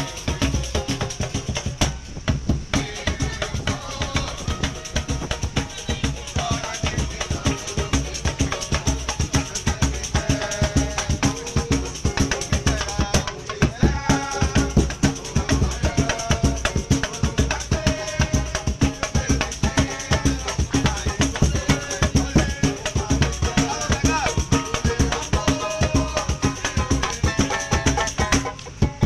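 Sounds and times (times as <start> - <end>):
samba drums: 0.0 - 29.0.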